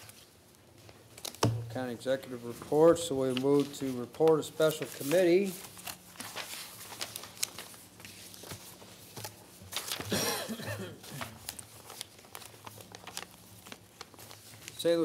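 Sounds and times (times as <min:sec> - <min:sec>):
paper rustling: 0:02.3 - 0:10.3, 0:11.0 - 0:15.0.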